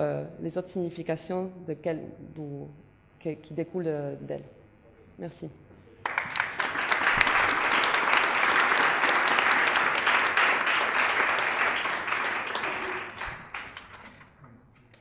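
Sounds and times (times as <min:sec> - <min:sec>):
audience applauding: 0:06.0 - 0:14.2.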